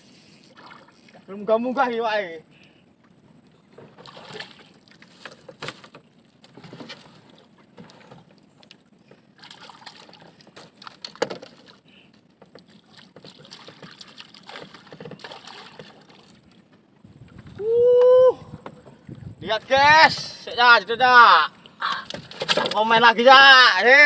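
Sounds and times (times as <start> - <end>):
water lapping around a boat: 3.4 - 17.5.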